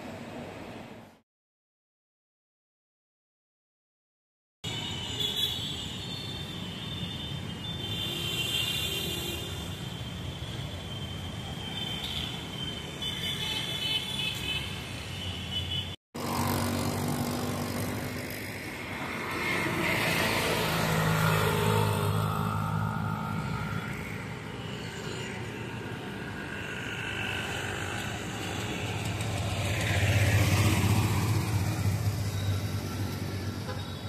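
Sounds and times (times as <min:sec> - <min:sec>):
road traffic: 0:00.0 - 0:01.2, 0:04.6 - 0:34.0.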